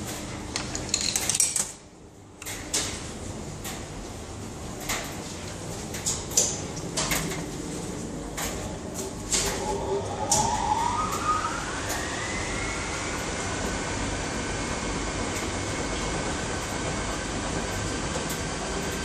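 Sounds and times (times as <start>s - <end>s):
coins clinking into machine: 0.8s - 1.7s.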